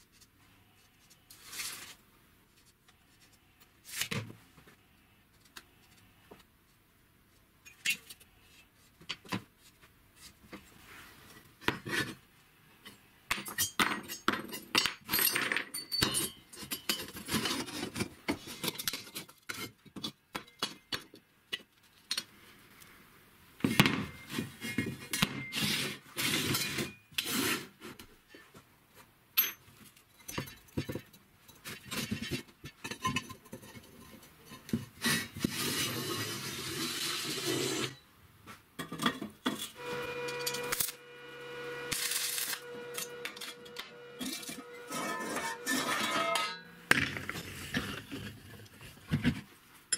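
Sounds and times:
metal tubing clinking on wood: 0:13.3 - 0:17.2
metal tubing scraping across bench: 0:35.1 - 0:38.0, 0:39.8 - 0:48.4.

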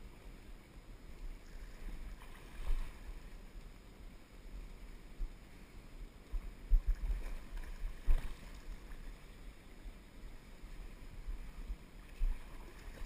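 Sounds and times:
river water rumbling: 0:00.0 - 0:13.0
wind on camera: 0:06.2 - 0:09.4, 0:10.6 - 0:13.0.

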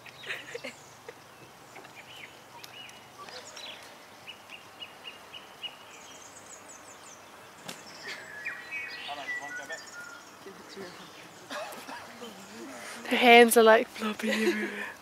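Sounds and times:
birds chirping: 0:00.0 - 0:15.0
outdoor background noise: 0:00.0 - 0:15.0.

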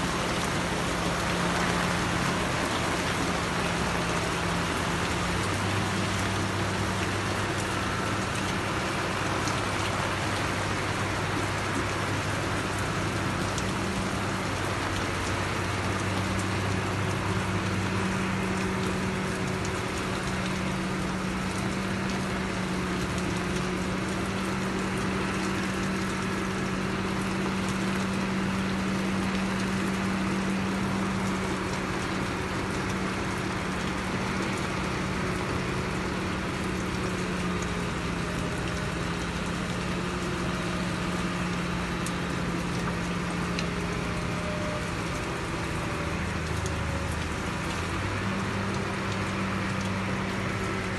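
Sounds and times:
engine droning low: 0:00.0 - 0:50.9
heavy rain falling: 0:00.0 - 0:50.9.

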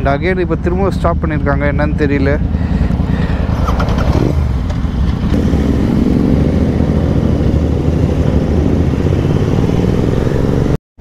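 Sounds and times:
motorcycle engine pulling away: 0:02.4 - 0:10.8.

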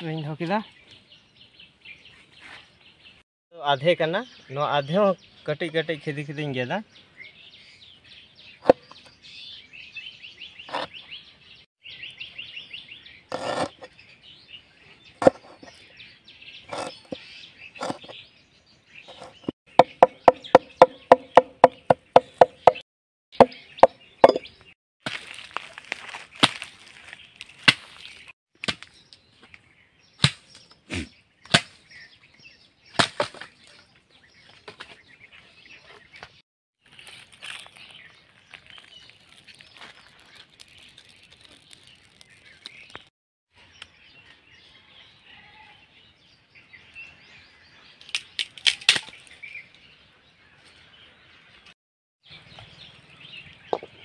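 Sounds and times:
knife chopping on wooden board: 0:19.1 - 0:22.8, 0:24.2 - 0:24.4.

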